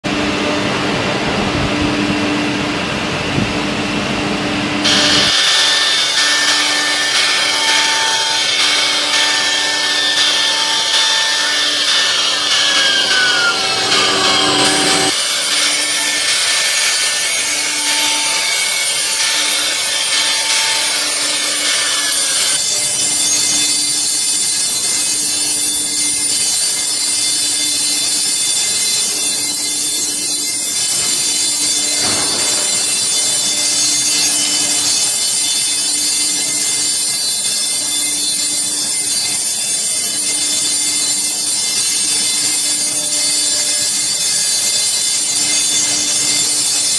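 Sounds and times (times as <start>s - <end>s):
machine whine and hum: 0.1s - 39.6s
router cutting board: 4.8s - 24.1s.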